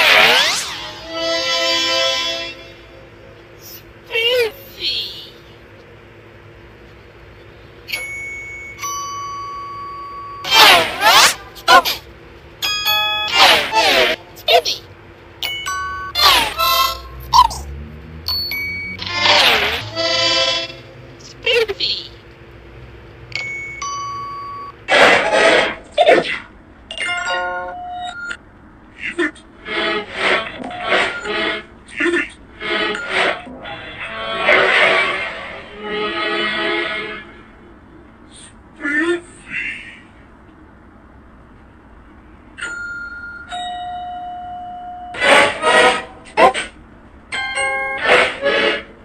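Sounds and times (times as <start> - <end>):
two-note doorbell chime: 7.9 - 10.5, 23.4 - 24.8, 42.6 - 45.2, 47.3 - 48.0
short loud voice-like bursts: 10.4 - 12.0
held electronic tones: 23.4 - 24.8.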